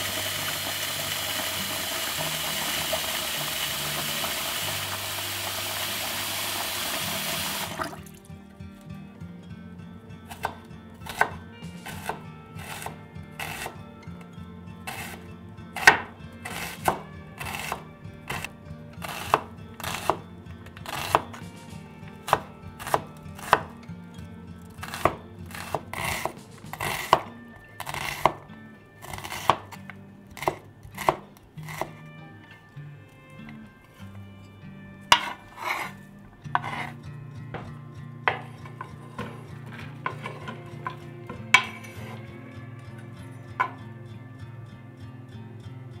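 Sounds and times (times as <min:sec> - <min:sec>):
knife chopping on wooden board: 0:10.3 - 0:13.8, 0:14.9 - 0:15.2, 0:15.8 - 0:23.7, 0:24.8 - 0:28.4, 0:29.0 - 0:29.7, 0:30.3 - 0:32.0, 0:35.1 - 0:35.9, 0:36.5 - 0:36.9, 0:37.6 - 0:42.2.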